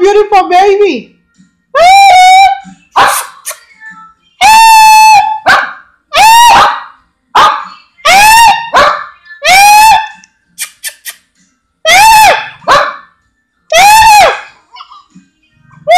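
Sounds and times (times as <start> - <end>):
small dog barking: 5.4 - 7.7, 8.4 - 9.1, 12.3 - 13.0.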